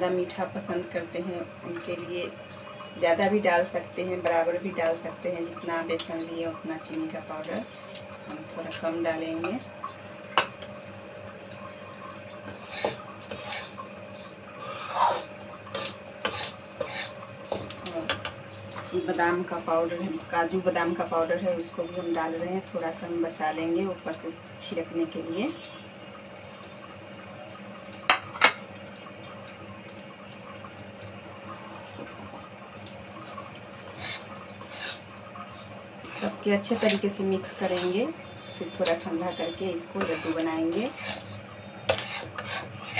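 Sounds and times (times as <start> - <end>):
metal spatula scraping metal pan: 12.5 - 13.8, 14.6 - 17.7, 33.9 - 41.3, 41.9 - 42.9.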